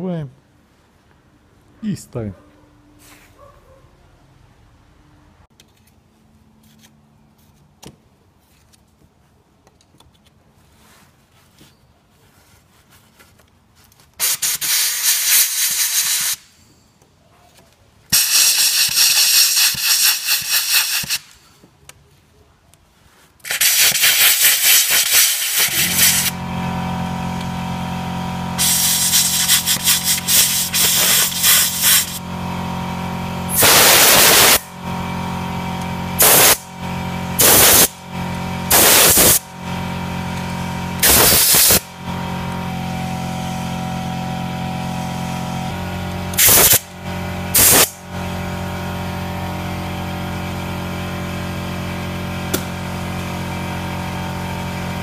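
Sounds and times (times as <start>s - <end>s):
compressed air blow gun hissing: 14.2s - 16.6s, 18.1s - 21.4s, 23.4s - 26.4s, 28.6s - 32.2s, 33.5s - 34.7s, 36.2s - 36.6s, 37.4s - 37.9s, 38.7s - 39.4s, 41.0s - 41.9s, 46.4s - 46.9s, 47.5s - 48.0s
motor humming: 25.5s - 55.0s.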